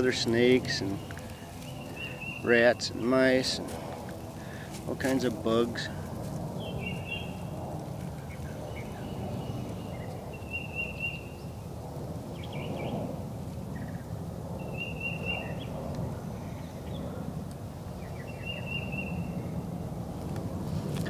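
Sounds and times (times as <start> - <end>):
high bird calls: 0.0 - 3.0, 13.7 - 15.8.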